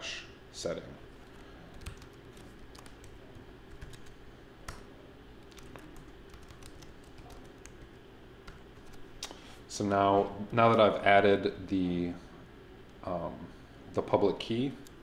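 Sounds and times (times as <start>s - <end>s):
computer keyboard typing: 1.2s - 9.0s.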